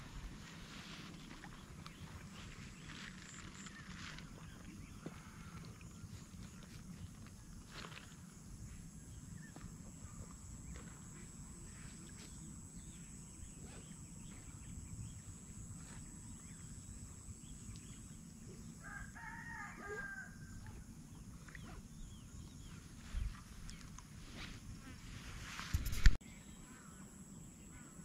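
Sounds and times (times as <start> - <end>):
rooster crowing: 18.8 - 20.6.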